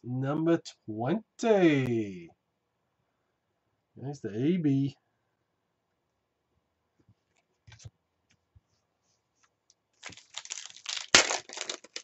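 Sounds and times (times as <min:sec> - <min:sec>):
wrapper crinkling and tearing: 0:10.0 - 0:12.0.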